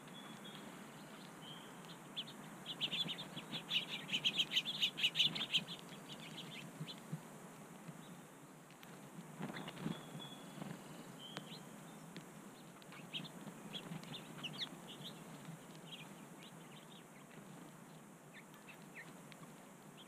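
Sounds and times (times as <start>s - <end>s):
songbirds chirping: 0.0s - 20.0s
whistled bird notes: 9.6s - 11.7s.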